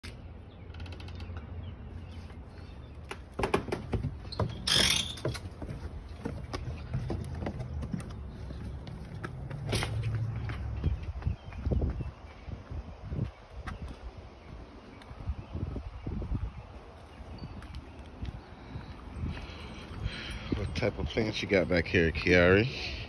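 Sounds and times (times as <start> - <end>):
footsteps on wooden porch: 2.0 - 15.2.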